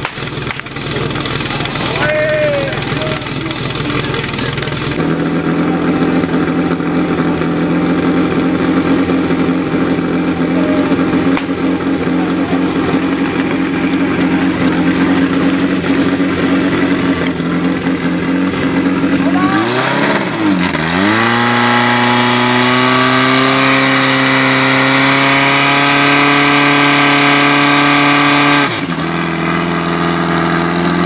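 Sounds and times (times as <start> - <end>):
sharp crack: 0.0 - 2.0, 11.2 - 11.8
petrol pump engine humming: 0.0 - 22.4.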